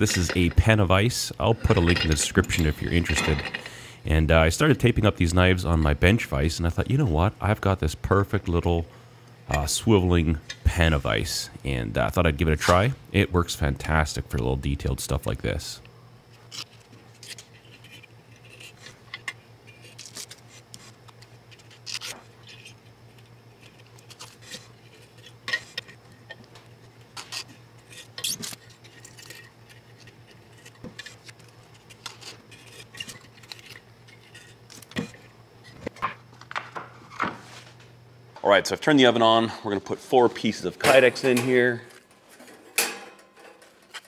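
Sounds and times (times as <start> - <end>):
faint steady hum: 0.0 - 44.0
tape clicks and crinkles: 16.3 - 36.8.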